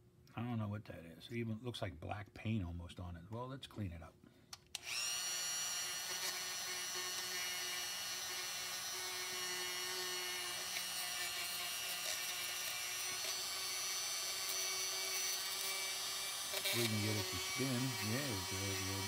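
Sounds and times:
rotary tool whining: 0:04.8 - 0:19.0.

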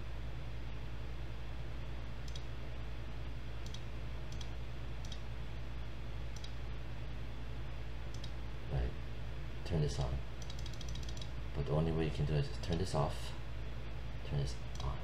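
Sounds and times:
computer mouse clicking: 0:02.2 - 0:02.5, 0:03.6 - 0:05.2, 0:06.4 - 0:06.6, 0:08.1 - 0:08.4, 0:10.4 - 0:11.3, 0:14.7 - 0:15.0.

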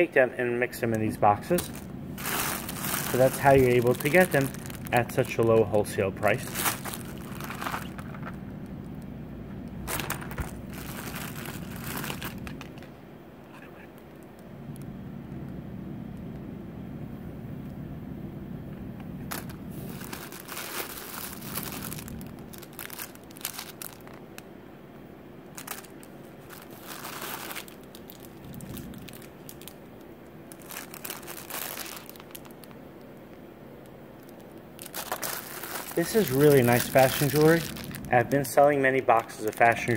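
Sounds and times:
low hum: 0:00.4 - 0:39.9
plastic bags crinkling: 0:01.2 - 0:09.0, 0:09.7 - 0:13.0, 0:19.2 - 0:24.5, 0:25.5 - 0:39.9.

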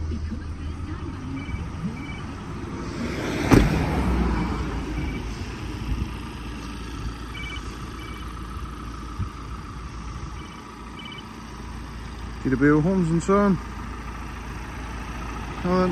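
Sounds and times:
low rumble: 0:00.0 - 0:12.6
van door slamming: 0:03.3 - 0:04.1.

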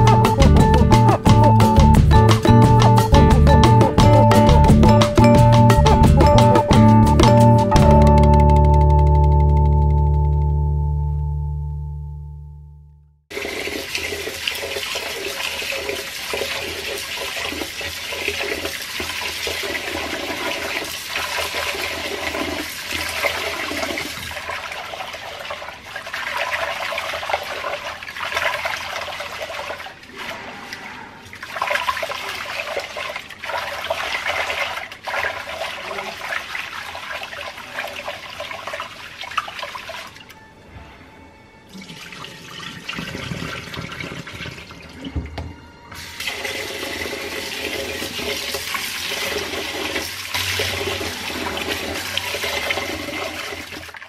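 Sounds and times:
water rushing and sloshing: 0:13.3 - 0:41.2, 0:46.3 - 0:54.0.

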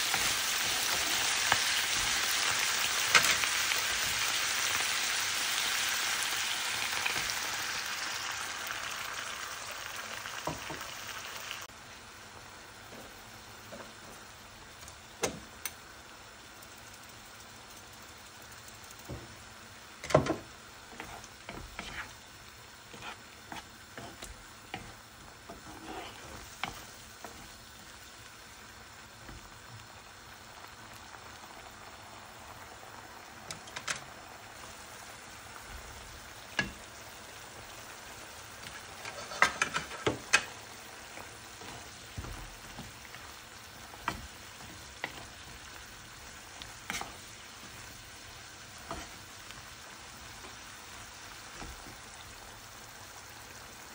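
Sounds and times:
beef sizzling in frying pan: 0:00.0 - 0:53.9.

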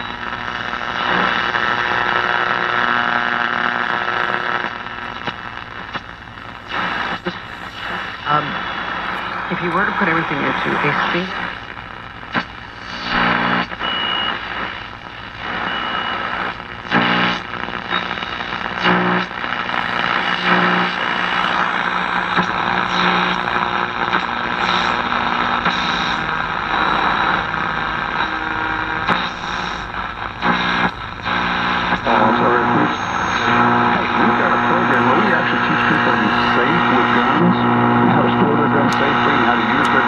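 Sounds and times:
radio static and hiss: 0:00.0 - 0:40.0
radio whistles: 0:12.8 - 0:40.0.

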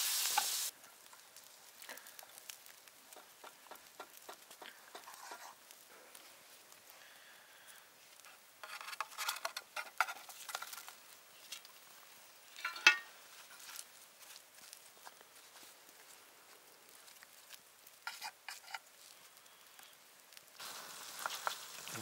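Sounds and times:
butter crackling in a tin: 0:00.2 - 0:05.9, 0:08.2 - 0:11.9, 0:16.8 - 0:22.0
spatula scraping: 0:04.9 - 0:05.6, 0:08.6 - 0:10.8, 0:18.0 - 0:18.9.

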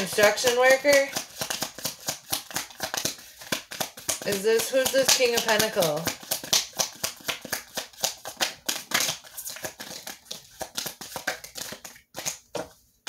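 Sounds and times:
cards being shuffled: 0:00.0 - 0:12.8.

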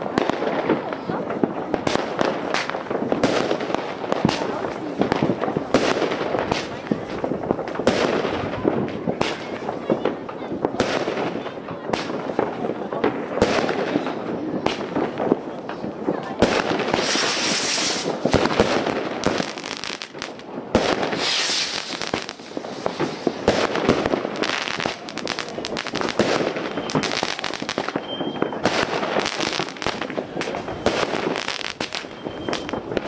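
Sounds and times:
fireworks bangs and crackles: 0:00.0 - 0:33.0
firework hissing rush: 0:16.6 - 0:20.2, 0:20.9 - 0:28.0.

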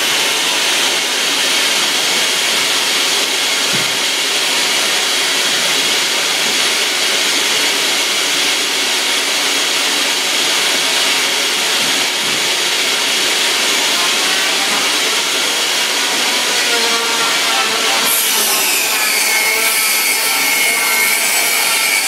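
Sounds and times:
table saw motor whine: 0:12.6 - 0:22.0.

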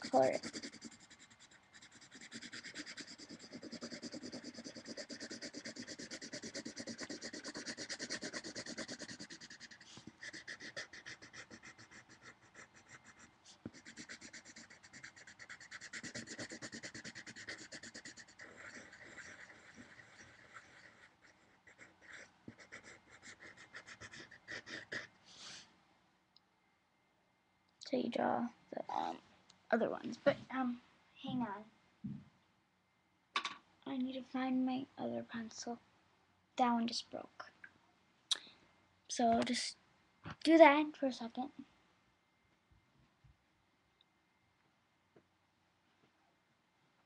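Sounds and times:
pencil scratching on paper: 0:00.0 - 0:25.1.

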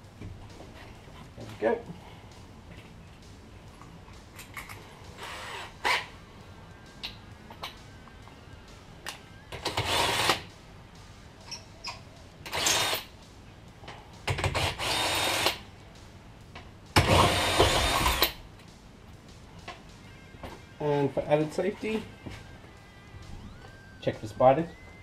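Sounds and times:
impact wrench bursts: 0:05.2 - 0:06.1, 0:09.6 - 0:10.5, 0:12.4 - 0:13.1, 0:14.2 - 0:15.6, 0:17.0 - 0:18.4.

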